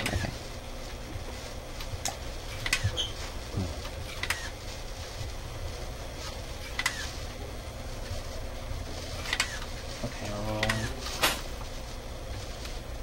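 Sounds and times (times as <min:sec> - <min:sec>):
steady low hum: 0:00.0 - 0:13.0
small sharp motor clicks: 0:04.1 - 0:04.6, 0:06.6 - 0:07.2, 0:09.2 - 0:09.7.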